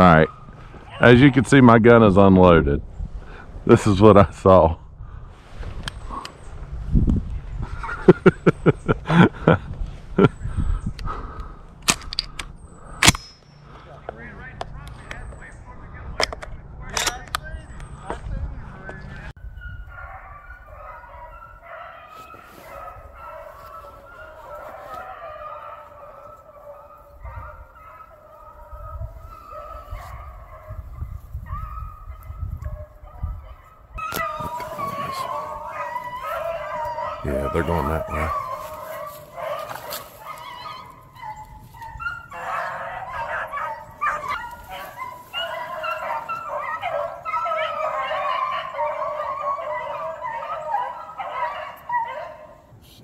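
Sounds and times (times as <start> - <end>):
dogs baying in the distance: 0.0 - 1.4, 17.7 - 52.9
low gusty rumble: 4.3 - 13.0.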